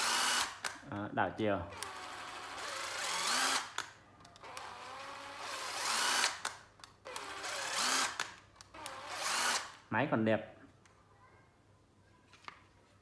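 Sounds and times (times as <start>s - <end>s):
impact driver motor whining: 0.0s - 0.7s, 1.7s - 9.8s.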